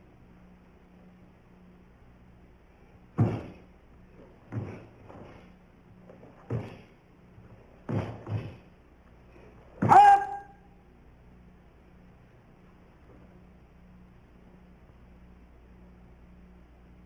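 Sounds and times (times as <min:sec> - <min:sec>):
bare feet thudding on wooden floor: 0:03.2 - 0:08.7, 0:09.7 - 0:10.2.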